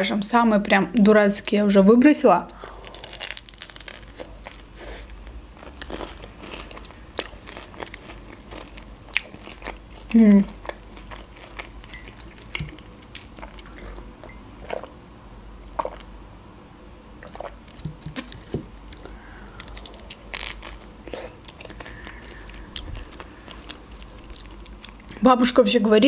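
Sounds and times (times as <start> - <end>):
person chewing: 2.5 - 15.0, 15.7 - 16.1, 17.2 - 25.2
wet mouth sounds: 10.5 - 14.9, 17.2 - 20.1.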